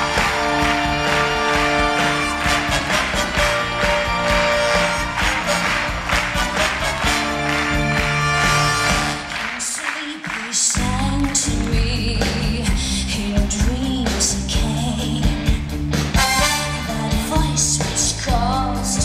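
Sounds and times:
live band playing: 0.0 - 19.0
woman singing: 9.5 - 15.6, 16.6 - 19.0.

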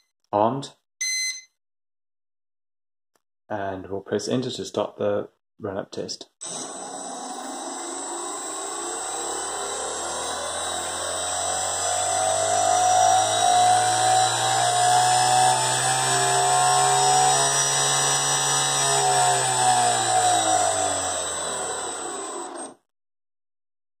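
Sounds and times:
small motor and propeller whirring: 6.4 - 22.8.

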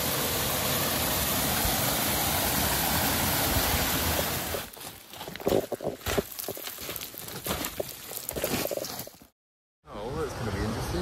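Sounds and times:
rushing mountain stream: 0.0 - 9.2
knocks and scuffs: 4.6 - 9.3.

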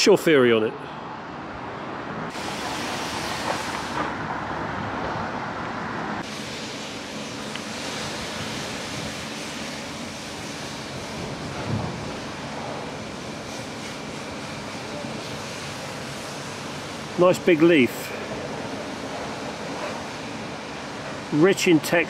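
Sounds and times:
distant road traffic: 0.0 - 22.0
wind on microphone: 10.5 - 13.0.

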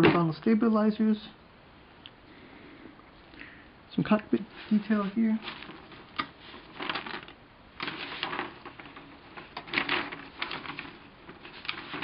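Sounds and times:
paper booklet rustling: 4.2 - 12.0.

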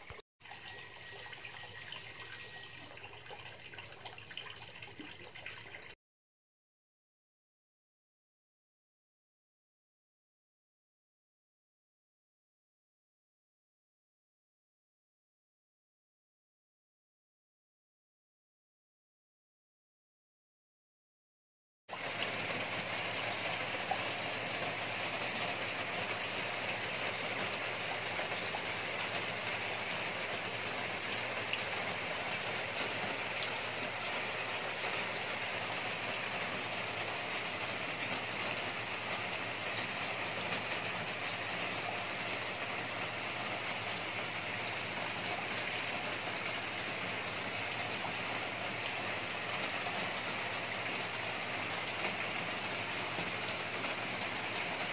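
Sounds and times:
splashing rushing water: 21.9 - 54.9.

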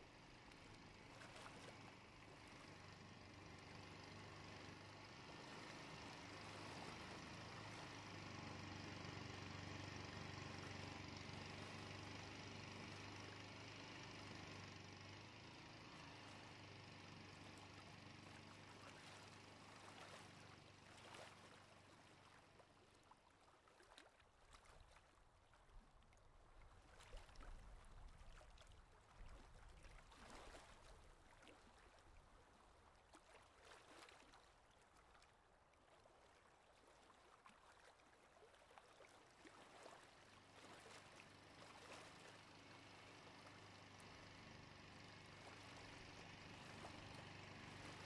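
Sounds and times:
water sloshing and trickling: 0.0 - 13.8, 15.9 - 48.0
low steady hum: 40.3 - 48.0.

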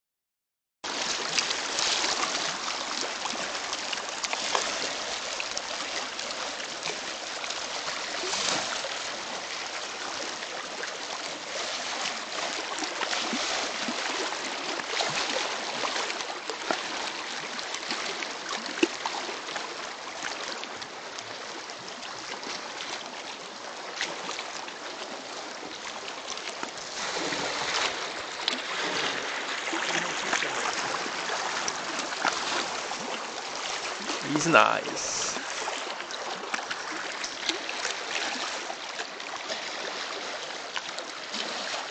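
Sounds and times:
water lapping on rocks: 0.9 - 41.9.

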